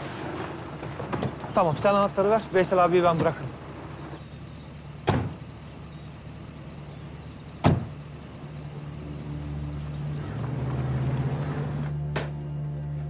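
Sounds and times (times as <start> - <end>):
car door slamming: 5.0 - 5.5, 7.6 - 8.0.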